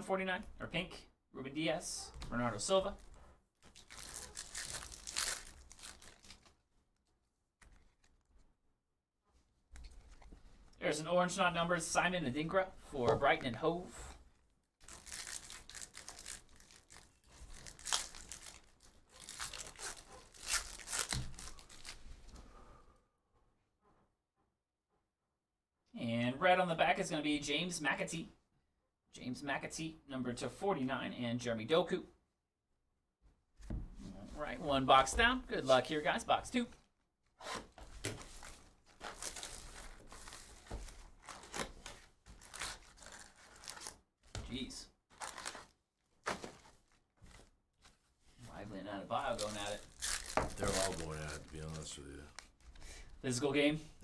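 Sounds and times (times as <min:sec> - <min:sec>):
foil wrapper crinkling: 0:03.6 - 0:07.1, 0:14.8 - 0:22.1, 0:49.2 - 0:52.6
foil wrapper tearing: 0:03.7 - 0:06.5, 0:14.8 - 0:22.0, 0:49.3 - 0:51.8.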